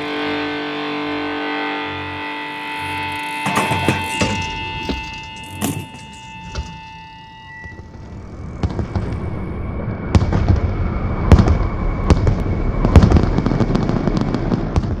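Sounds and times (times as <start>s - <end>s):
faint steady high tone: 0.4s - 10.1s
sharp bangs and crackles: 2.3s - 15.0s.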